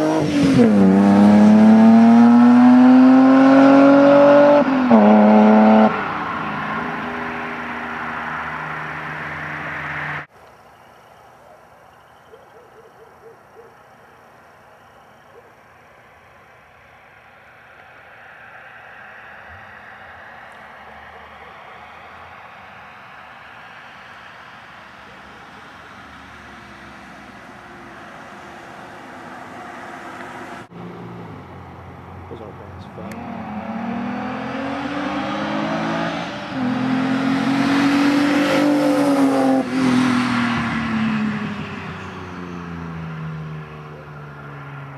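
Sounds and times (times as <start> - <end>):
car exhaust: 0.0 - 10.3
road noise: 0.0 - 44.9.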